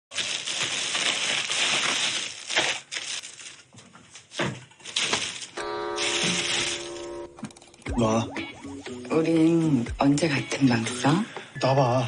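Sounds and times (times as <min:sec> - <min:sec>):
plastic bags rustling: 0:00.1 - 0:07.6.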